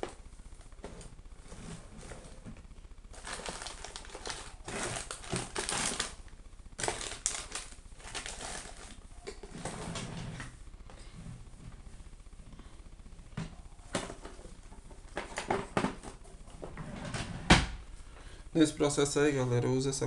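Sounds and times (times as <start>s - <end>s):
low electrical hum: 0.0s - 20.0s
rustling scraping handling: 3.1s - 6.2s.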